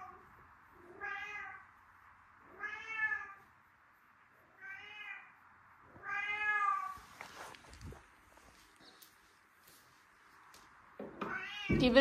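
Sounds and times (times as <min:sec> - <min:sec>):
cat meowing: 0:00.8 - 0:01.7, 0:02.4 - 0:03.4, 0:04.5 - 0:07.0, 0:11.2 - 0:11.8.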